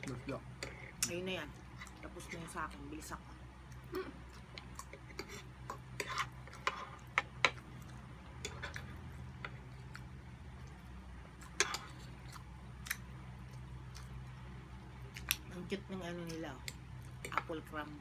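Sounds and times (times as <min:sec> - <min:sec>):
steady low hum: 0:00.0 - 0:18.0
forks scraping a plate: 0:05.1 - 0:07.0.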